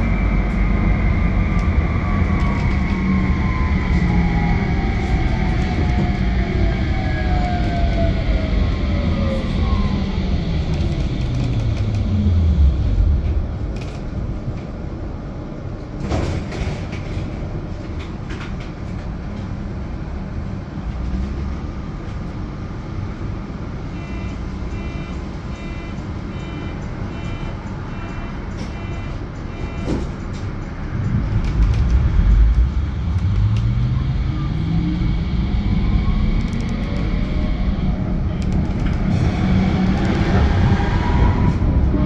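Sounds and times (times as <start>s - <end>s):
tram motor whine: 0.0s - 42.0s
tram rumble: 0.0s - 42.0s
short electronic beeps: 23.9s - 30.0s.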